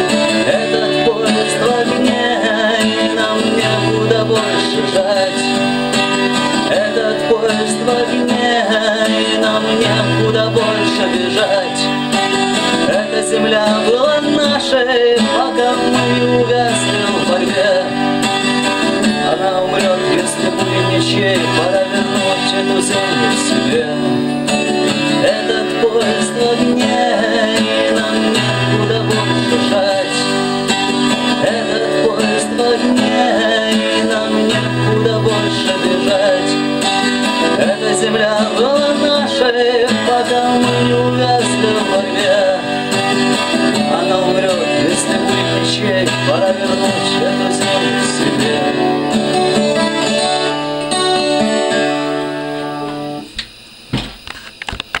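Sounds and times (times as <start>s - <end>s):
twelve-string acoustic guitar strumming: 0.0s - 55.0s
guitar being moved knocks: 52.8s - 55.0s.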